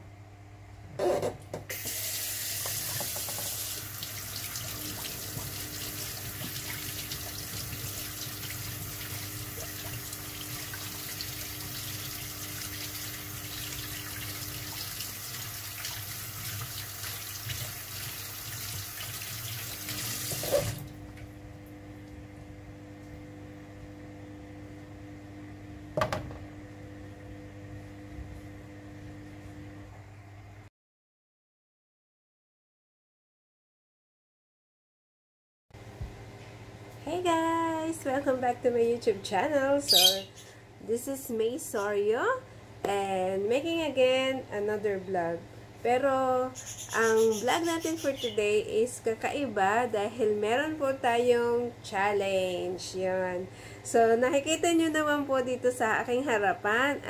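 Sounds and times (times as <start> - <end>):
tap shutting off clunk: 2.6 - 3.6, 25.9 - 26.6
tap running into steel sink: 2.6 - 3.7, 26.0 - 26.4
single knock: 26.0 - 26.4.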